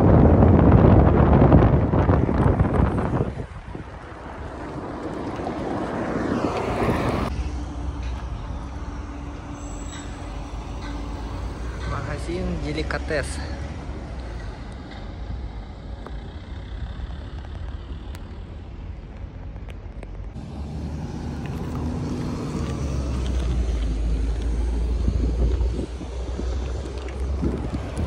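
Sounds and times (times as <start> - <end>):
traffic rumble: 0.0 - 28.0
wind: 0.0 - 28.0
motor vehicle passing: 2.7 - 9.2, 20.3 - 28.0.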